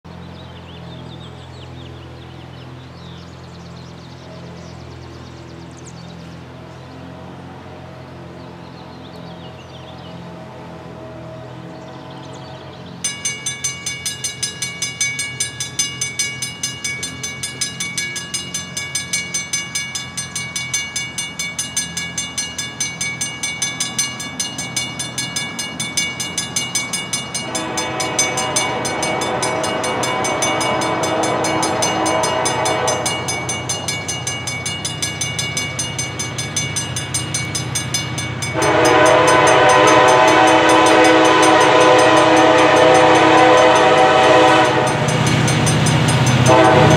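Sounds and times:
crossing warning bell ringing: 12.8 - 46.9
locomotive air horn blast: 27.4 - 33.4, 38.5 - 45.1, 46.4 - 46.9.

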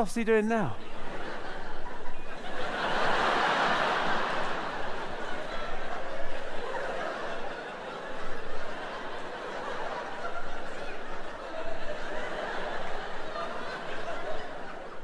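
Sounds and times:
audience laughing: 0.8 - 15.0.

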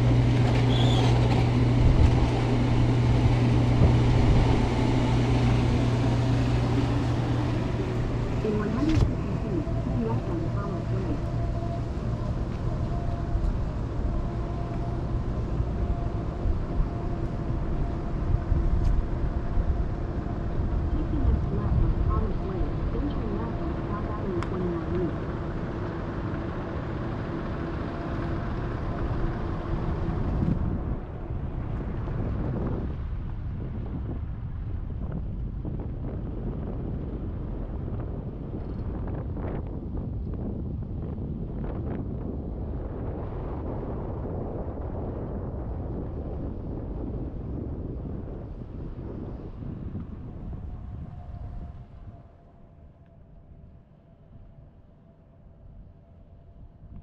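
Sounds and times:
car engine idling: 2.6 - 31.5.

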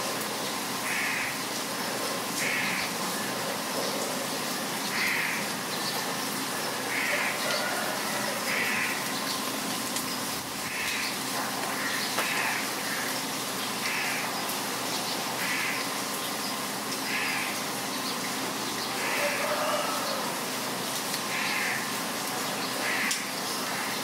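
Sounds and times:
heavy rain: 0.0 - 24.0
bird calling: 0.8 - 1.4, 2.4 - 13.2, 13.8 - 14.4.

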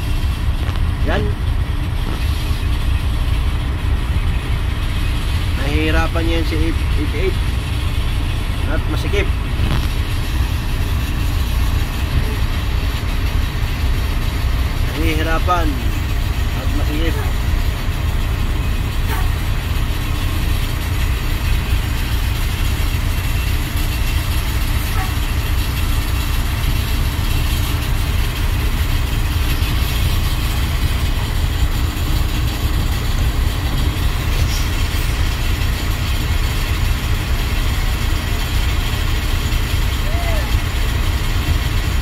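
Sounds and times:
bus engines idling: 0.0 - 42.0.

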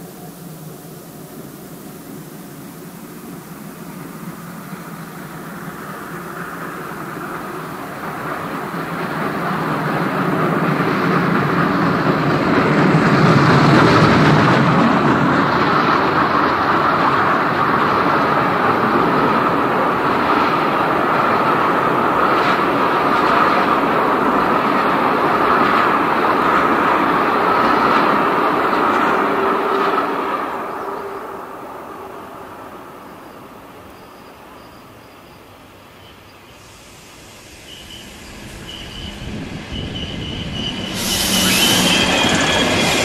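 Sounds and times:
steam locomotive passing: 0.0 - 43.0
wheels clacking over rail joints: 4.7 - 31.6.

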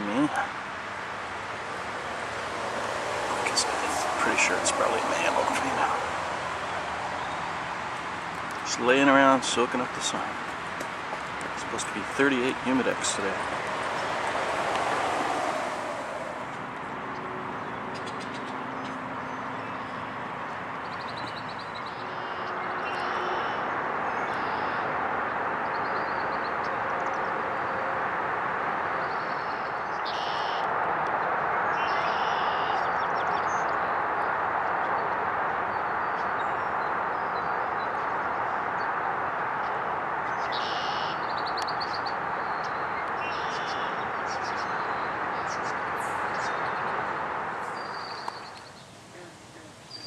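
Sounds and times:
steady rushing noise: 0.0 - 17.1
small birds chirping: 1.5 - 15.3, 35.7 - 50.0.

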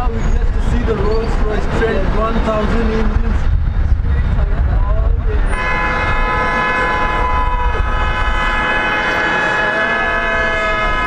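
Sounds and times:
low rumble: 0.0 - 8.4
long horn blast: 5.5 - 11.0.

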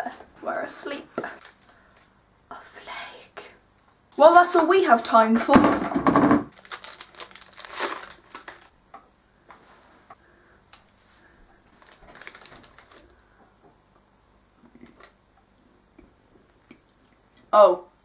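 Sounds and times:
plastic wrapper crinkling: 1.3 - 2.2, 6.5 - 8.8, 11.7 - 13.2
chocolate crunching: 1.4 - 2.1, 6.5 - 8.7, 11.7 - 13.2.

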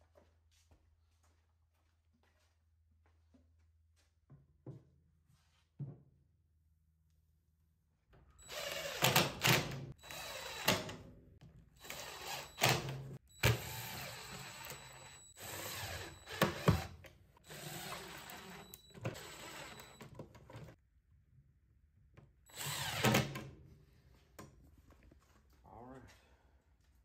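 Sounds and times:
cordless drill driving screws: 8.4 - 11.0, 11.8 - 20.1, 22.5 - 23.4
drill clicks: 8.4 - 11.0, 11.8 - 20.2.

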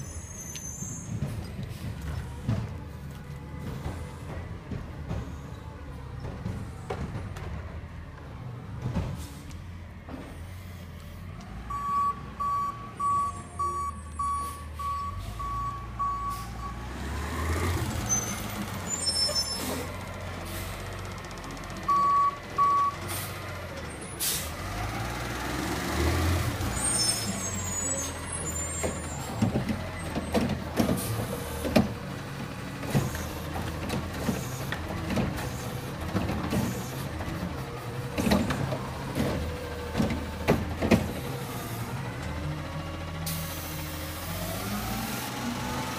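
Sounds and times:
diesel truck engine revving: 11.2 - 45.9
reversing alarm beeping: 11.7 - 16.9, 21.9 - 23.0
air brake hiss: 24.2 - 24.6, 43.3 - 44.1.

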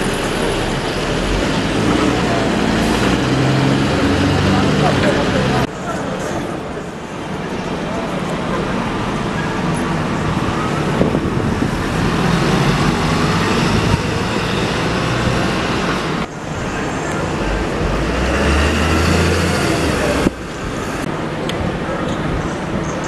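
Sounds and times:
bus engine humming: 0.0 - 23.0
bus passing: 0.0 - 23.0.

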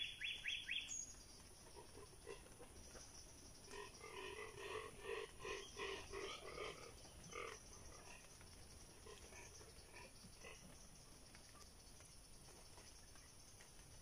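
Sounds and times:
frog calling: 0.0 - 1.0, 1.6 - 8.2.

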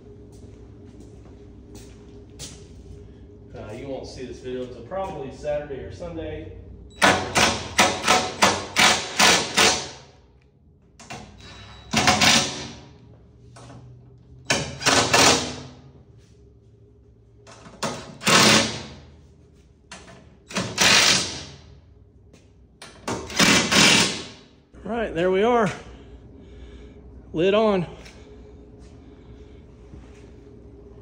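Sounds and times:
impact driver hammering: 7.0 - 10.1, 11.9 - 12.8, 20.5 - 21.6, 22.8 - 24.4.

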